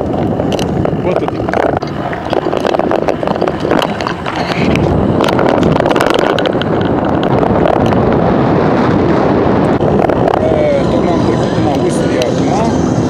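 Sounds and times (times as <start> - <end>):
rolling tyre noise: 0.0 - 13.0
wind rushing over microphone: 0.0 - 13.0
small clicks and rattles: 0.1 - 8.0.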